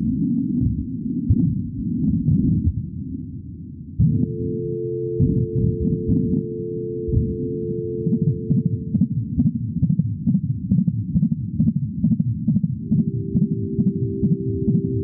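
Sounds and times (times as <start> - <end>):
fetal heartbeat whooshing thuds: 0.1 - 3.0, 4.0 - 4.3, 5.2 - 6.4, 7.1 - 7.5, 8.1 - 15.0
soft held tones: 4.0 - 9.2, 12.8 - 15.0.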